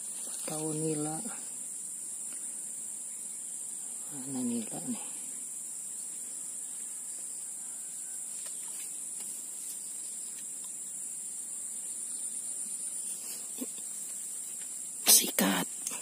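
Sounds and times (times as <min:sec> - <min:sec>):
high-pitched insect drone: 0:00.0 - 0:16.0
faint ticks: 0:08.4 - 0:10.8.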